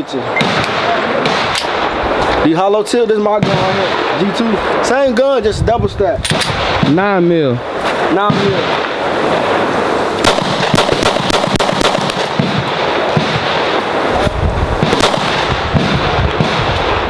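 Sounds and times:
pistol shots: 0.3s - 1.9s, 3.4s - 4.8s, 6.2s - 7.1s, 10.2s - 14.1s, 14.8s - 17.0s.

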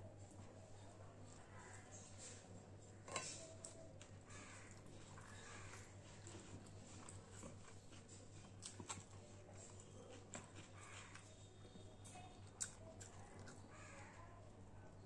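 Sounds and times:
chewing: 3.1s - 14.2s.

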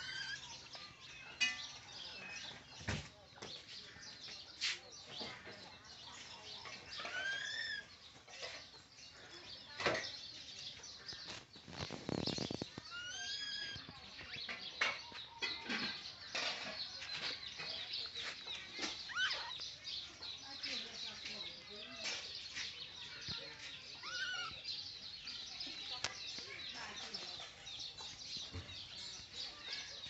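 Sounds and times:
baby monkey squeaking: 0.0s - 0.6s, 7.0s - 7.9s, 12.1s - 14.4s, 19.0s - 19.6s, 24.0s - 24.6s
bird chirps: 0.0s - 30.0s.

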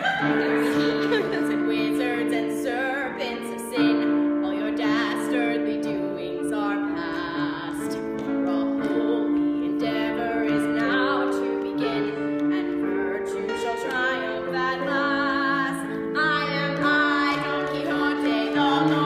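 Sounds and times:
woman singing with vibrato: 0.0s - 19.0s.

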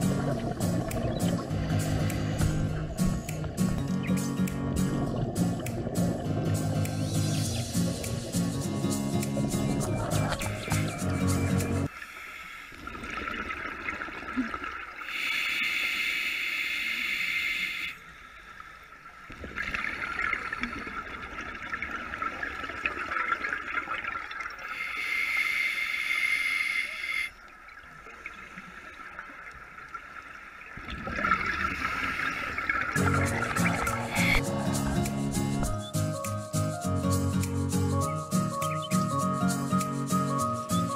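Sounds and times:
gurgling exhaled bubbles: 0.0s - 3.8s, 12.8s - 15.1s, 19.3s - 24.6s, 30.7s - 35.7s
hissing regulator inhalation: 0.6s - 3.6s, 15.0s - 18.0s, 24.7s - 27.3s, 31.9s - 35.7s.

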